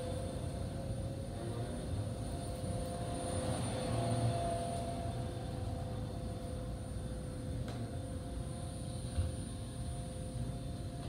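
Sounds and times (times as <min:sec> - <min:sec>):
faint steady tones: 0:00.0 - 0:11.0
low mechanical hum: 0:00.0 - 0:11.0.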